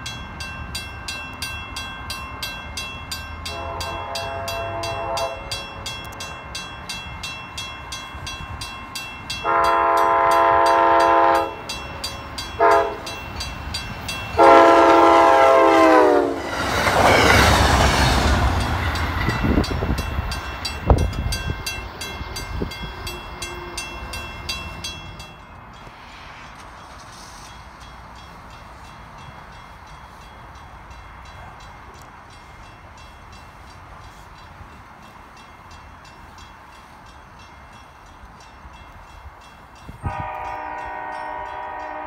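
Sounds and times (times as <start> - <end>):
crossing bell ringing: 0.0 - 42.0
train wheels clacking on rails: 0.0 - 42.0
train horn blasts: 3.5 - 5.8, 9.4 - 13.2, 14.4 - 17.3, 39.9 - 42.0.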